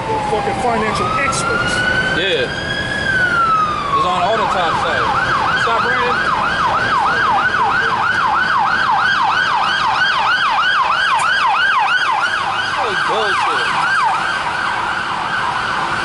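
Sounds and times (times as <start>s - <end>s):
emergency siren yelping: 0.0s - 16.0s.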